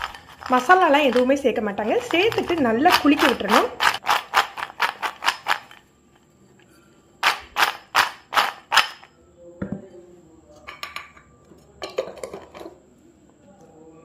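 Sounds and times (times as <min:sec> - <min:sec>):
fried snacks rattling in a bowl: 0:00.0 - 0:05.8, 0:07.2 - 0:09.1.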